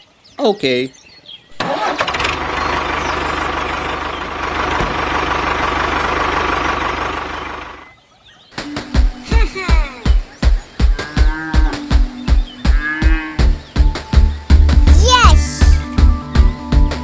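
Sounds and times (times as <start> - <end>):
tractor engine running: 1.6 - 7.9.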